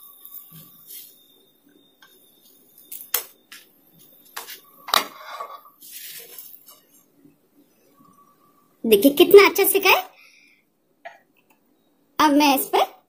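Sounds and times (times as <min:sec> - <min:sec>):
spatula scraping a pan: 0:05.0 - 0:06.4.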